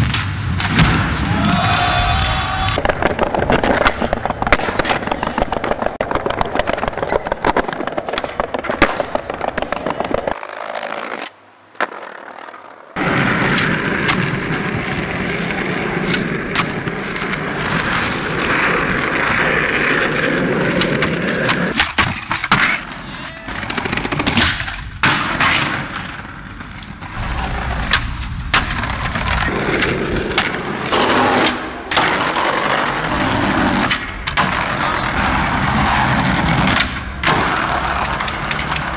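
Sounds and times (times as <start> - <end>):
skateboard wheels rolling on pavement: 0.0 - 38.9
skateboard clacks: 2.6 - 38.9.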